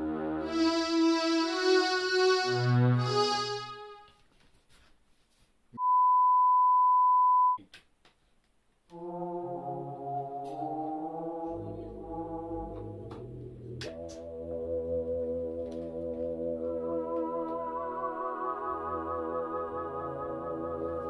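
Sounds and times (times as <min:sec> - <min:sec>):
synthesizer chords with bass: 0:09.0 - 0:21.0.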